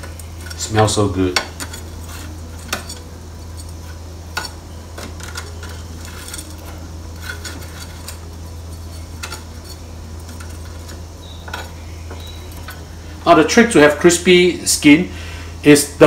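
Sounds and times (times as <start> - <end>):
metal tongs clinking on wire mesh: 0.0 - 12.8
steady low hum: 0.0 - 16.0.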